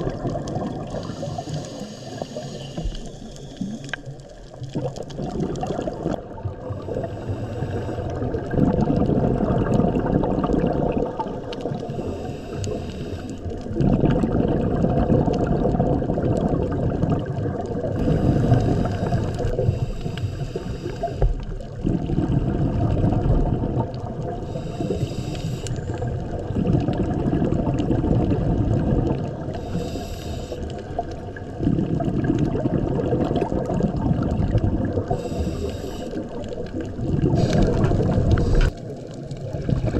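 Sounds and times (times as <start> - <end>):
exhaled bubbles rumbling: 0.0 - 39.9
regulator hiss on inhale: 0.9 - 4.5, 6.8 - 8.3, 11.8 - 13.7, 18.0 - 21.8, 24.3 - 26.4, 29.5 - 31.2, 35.0 - 38.8.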